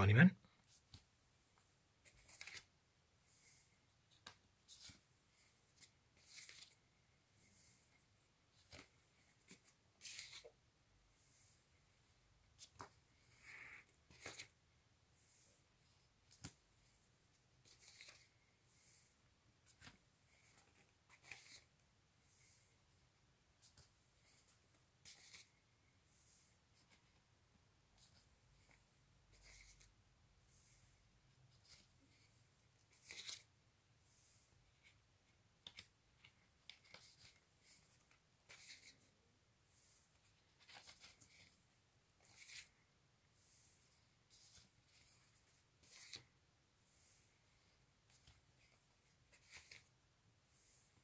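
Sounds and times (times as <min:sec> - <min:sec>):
cardboard record sleeves flipping: 0:02.1 - 0:02.7, 0:08.6 - 0:10.5, 0:14.1 - 0:14.5, 0:45.8 - 0:46.3.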